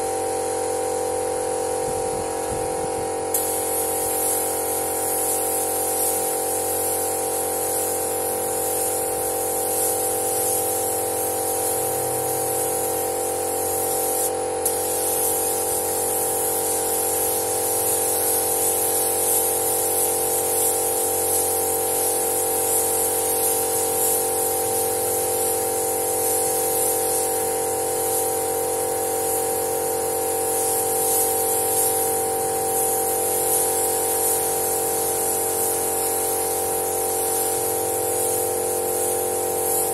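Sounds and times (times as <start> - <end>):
spray gun hissing: 0.0 - 39.9.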